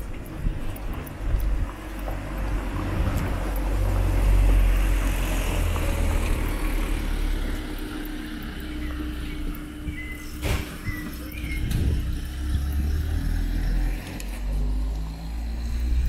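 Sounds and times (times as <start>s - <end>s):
car driving past: 2.4s - 9.4s, 10.4s - 16.0s.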